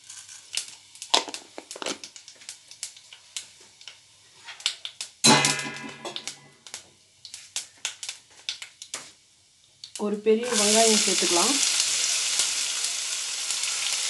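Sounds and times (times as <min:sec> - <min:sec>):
seeds crackling in hot oil: 0:00.0 - 0:14.0.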